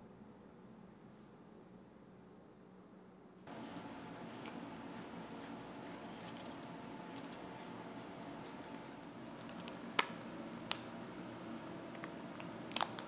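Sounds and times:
plastic crinkling: 0:12.0 - 0:13.0.

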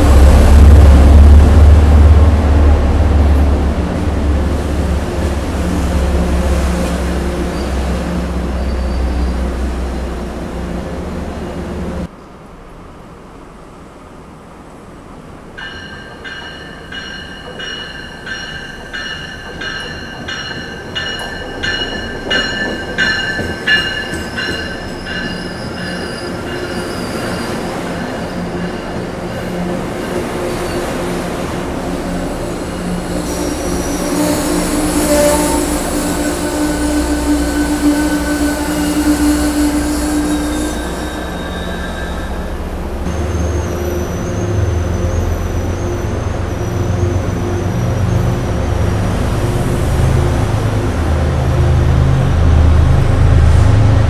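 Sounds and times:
low train rumble: 0:00.0 - 0:54.0
train wheels squealing: 0:08.5 - 0:09.5, 0:15.7 - 0:29.1, 0:32.6 - 0:48.4.

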